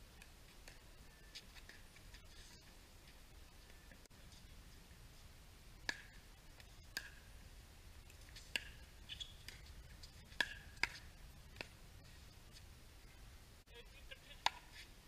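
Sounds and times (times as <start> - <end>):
paddles hitting plastic ball: 10.3 - 11.8.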